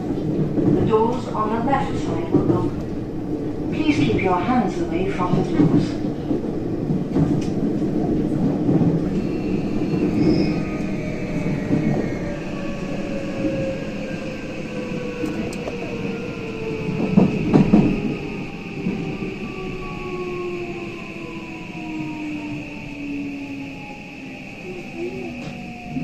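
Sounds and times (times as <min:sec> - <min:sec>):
wheel and rail rumble: 0:00.0 - 0:20.1.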